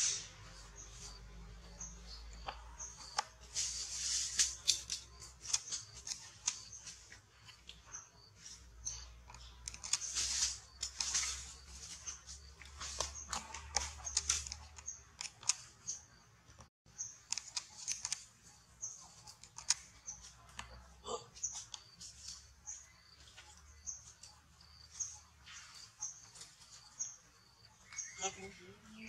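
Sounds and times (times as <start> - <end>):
small clicks: 4.4 - 8.0, 8.9 - 11.4, 12.6 - 18.3, 19.2 - 20.8.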